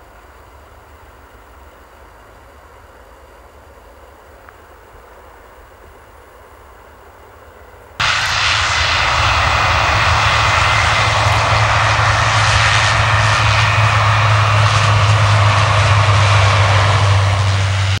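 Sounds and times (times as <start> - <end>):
jet engines at takeoff power: 6.9 - 18.0.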